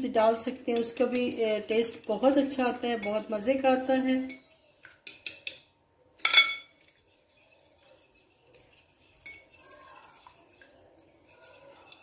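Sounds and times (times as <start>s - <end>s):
fork stirring batter: 0.0s - 12.0s
fork clinking glass bowl: 2.8s - 3.4s, 4.0s - 12.0s.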